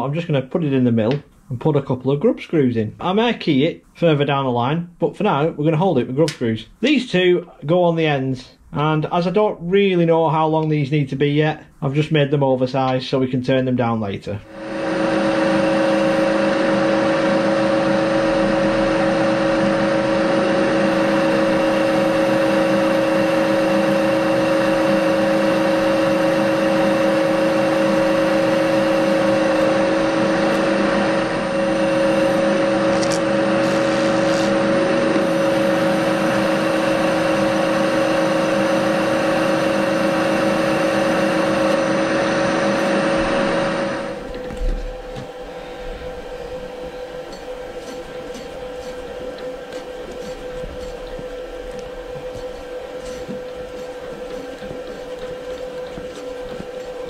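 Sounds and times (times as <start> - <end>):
milling machine drilling metal: 14.5 - 57.0.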